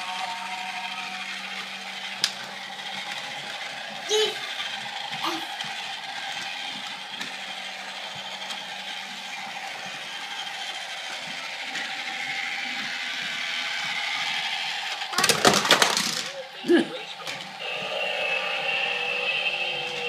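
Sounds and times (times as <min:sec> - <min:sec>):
toy train motor whirring: 0:00.0 - 0:20.0
wheels rattling on plastic track: 0:00.0 - 0:20.0
loud clattering: 0:15.1 - 0:16.3.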